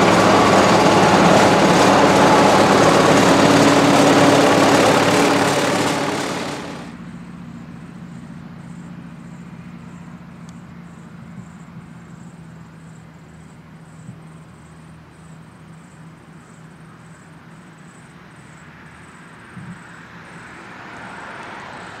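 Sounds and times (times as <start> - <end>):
steady low hum: 0.0 - 7.0
road traffic rushing: 0.0 - 7.2.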